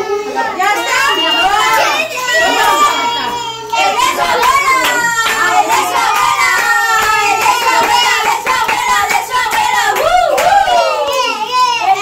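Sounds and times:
children singing and calling out: 0:00.0 - 0:12.0
hand clapping: 0:04.4 - 0:11.3.

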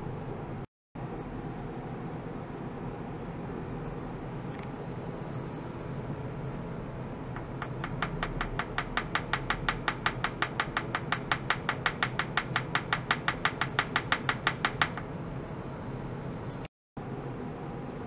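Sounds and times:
wooden mallet tapping steel tray: 0:07.4 - 0:15.1.

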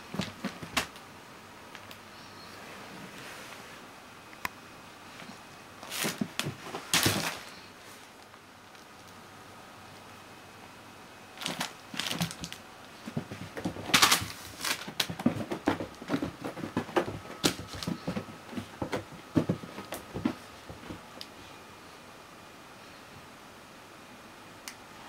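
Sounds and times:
kitten pouncing on carpet: 0:11.4 - 0:21.1.

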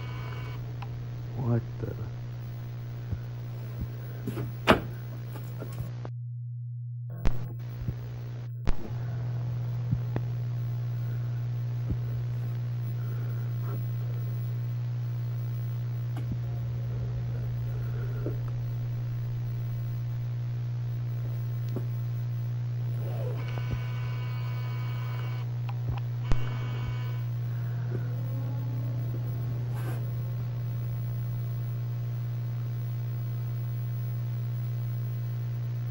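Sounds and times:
faint clicks: 0:00.0 - 0:01.0, 0:23.1 - 0:28.1
high multi-tone whine: 0:00.0 - 0:35.9
low electrical hum: 0:00.0 - 0:35.9.

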